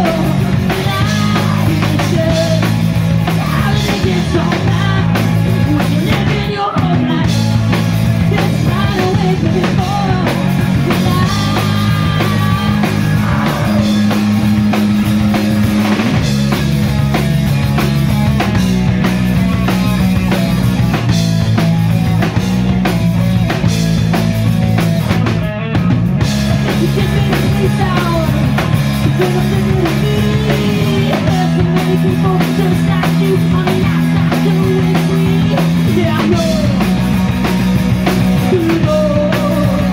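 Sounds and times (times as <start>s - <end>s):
person singing: 0.0s - 14.7s, 26.6s - 37.0s, 38.4s - 39.9s
rock band playing: 0.0s - 39.9s.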